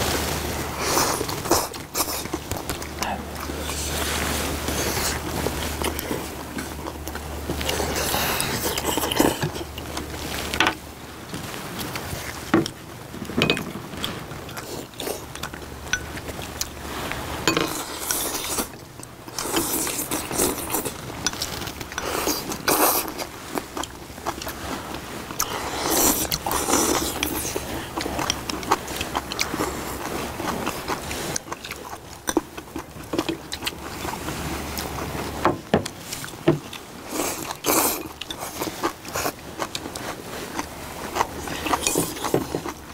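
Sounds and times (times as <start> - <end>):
people chewing: 0.0 - 42.9
people slurping soup: 0.1 - 10.6, 16.8 - 23.4, 24.4 - 32.0.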